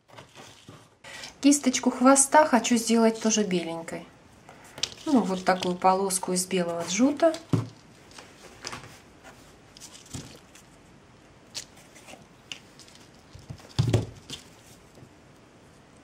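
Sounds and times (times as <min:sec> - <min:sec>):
small clicks and rustles: 0:04.5 - 0:05.9, 0:07.0 - 0:08.9, 0:09.7 - 0:10.8, 0:11.5 - 0:16.0.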